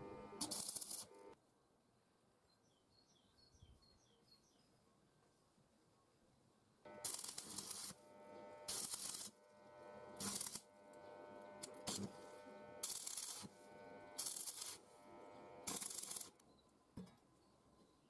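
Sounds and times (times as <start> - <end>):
steady electric hum: 0.0 - 1.4, 6.9 - 16.3
welding arc crackling: 0.0 - 1.4, 6.9 - 16.4.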